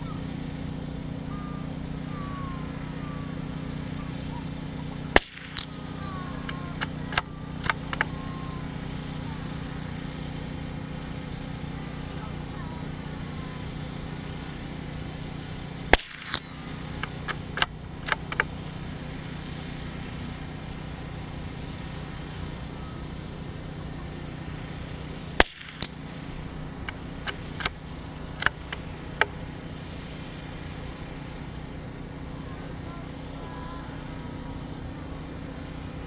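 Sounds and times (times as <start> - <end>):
low hum: 0.0 - 36.0
rifle shots: 5.1 - 6.0, 15.9 - 18.4, 25.4 - 26.1, 26.8 - 29.5
rifle bolt metallic clicks: 6.8 - 8.1, 17.0 - 18.5, 26.8 - 29.4.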